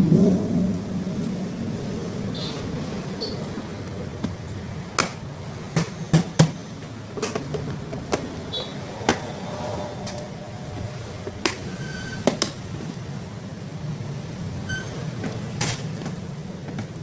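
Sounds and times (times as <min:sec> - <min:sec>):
steady low rumble: 0:00.0 - 0:06.1, 0:06.7 - 0:11.8.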